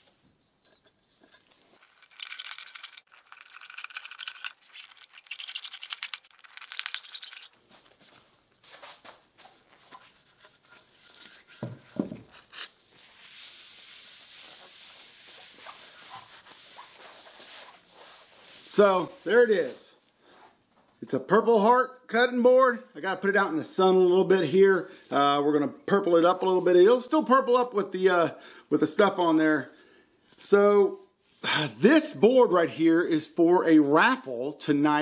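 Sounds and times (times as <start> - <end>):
paper towel rubbing wood: 13.0 - 19.4.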